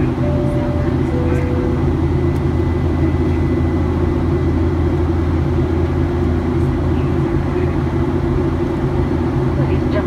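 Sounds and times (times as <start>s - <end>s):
jet engine drone in cabin: 0.0s - 10.0s.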